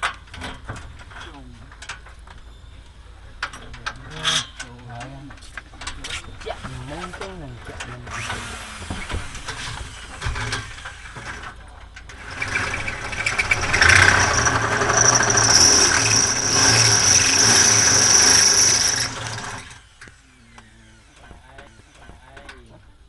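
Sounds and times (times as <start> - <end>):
power tool whining: 8.1 - 22.1.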